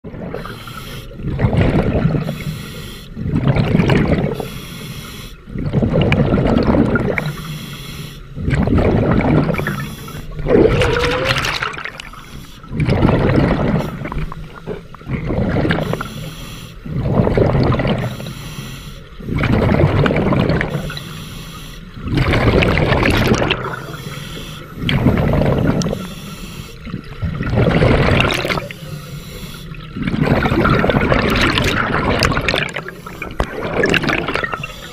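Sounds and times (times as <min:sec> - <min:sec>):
hissing inhalations: 0:02.2 - 0:03.2, 0:07.2 - 0:08.3, 0:12.0 - 0:12.7, 0:15.8 - 0:16.9, 0:18.1 - 0:19.1, 0:20.9 - 0:22.0, 0:23.8 - 0:24.9, 0:25.8 - 0:26.9, 0:28.7 - 0:29.9
bubbling regulator exhalation: 0:05.6 - 0:07.3, 0:08.4 - 0:16.1, 0:16.9 - 0:18.2, 0:19.3 - 0:21.0, 0:22.0 - 0:24.0, 0:24.8 - 0:26.1, 0:26.8 - 0:28.8, 0:29.7 - 0:34.9.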